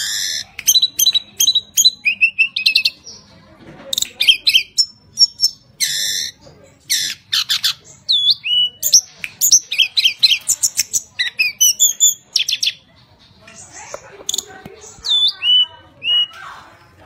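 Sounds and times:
harsh rasping bird notes: 0:04.0 - 0:12.8.

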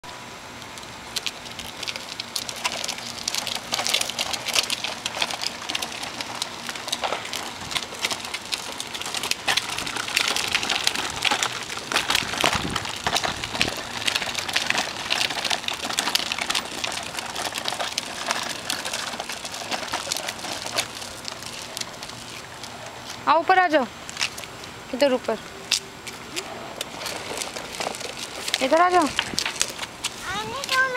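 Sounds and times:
plastic wheels rolling on asphalt: 0:00.0 - 0:30.9.

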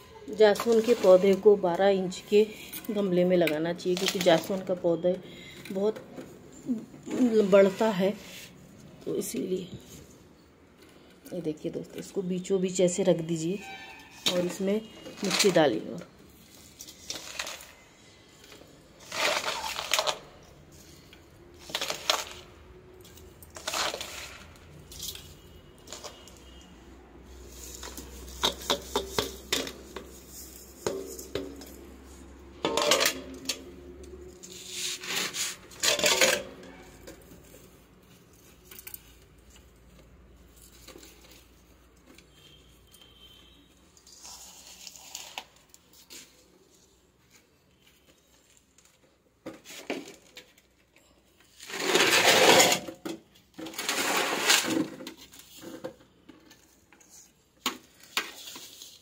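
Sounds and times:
soil scraping metal bowl: 0:51.6 - 0:52.9.

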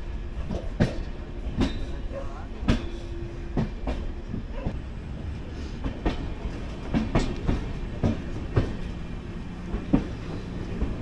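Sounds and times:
low train rumble: 0:00.0 - 0:11.0
train wheels clacking over rail joints: 0:00.4 - 0:02.0, 0:02.6 - 0:04.8, 0:05.8 - 0:08.9.

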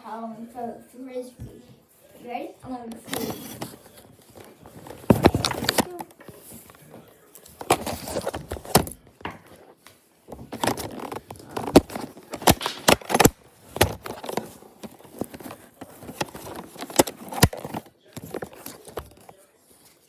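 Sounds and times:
phone handling rustling: 0:02.9 - 0:09.7, 0:10.3 - 0:19.4.

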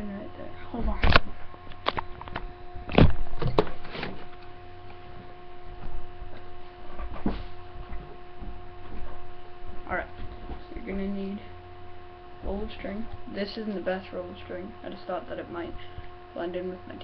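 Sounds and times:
steady electrical hum: 0:00.0 - 0:17.0
thumps against microphone: 0:00.8 - 0:04.4, 0:05.1 - 0:10.8.

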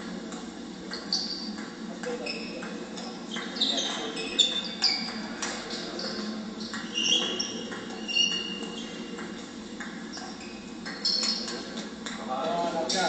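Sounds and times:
steady hall hum: 0:00.0 - 0:13.0
shoe squeaks: 0:00.9 - 0:01.6, 0:02.2 - 0:02.7, 0:03.3 - 0:09.2, 0:10.1 - 0:11.5.

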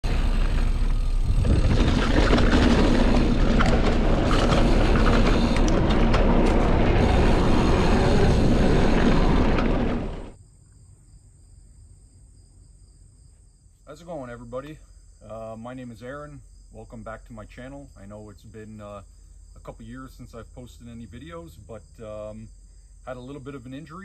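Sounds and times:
mountain bike riding over rough ground: 0:00.0 - 0:10.4
crickets chirring: 0:00.1 - 0:09.6, 0:10.3 - 0:24.0
bike rattles and knocks: 0:00.1 - 0:10.4.

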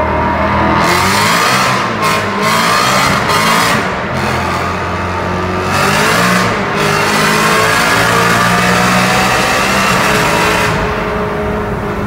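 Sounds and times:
car engine revving hard: 0:00.0 - 0:12.0.

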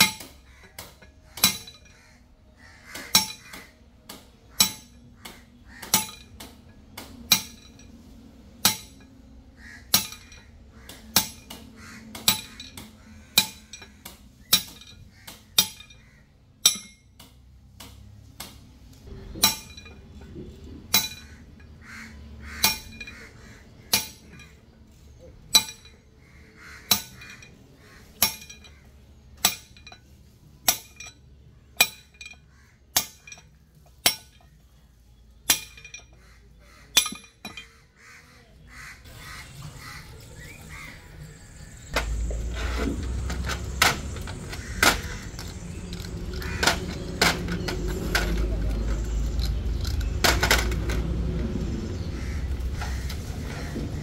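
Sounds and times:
hammer striking metal: 0:00.0 - 0:02.2, 0:02.9 - 0:18.5, 0:19.1 - 0:21.8, 0:22.5 - 0:24.6, 0:25.4 - 0:26.1, 0:26.8 - 0:34.6, 0:35.4 - 0:36.3, 0:36.9 - 0:37.9.

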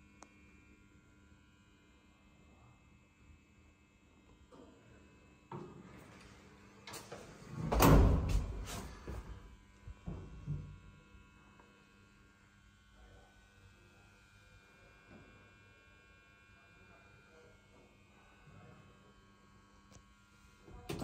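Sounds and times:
lift door whirring: 0:05.8 - 0:09.4
lift doors knocking shut: 0:07.6 - 0:08.6.

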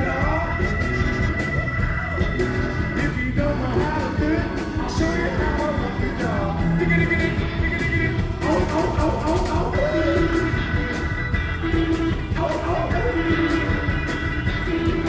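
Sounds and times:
rhythm and blues band playing: 0:00.0 - 0:15.0.

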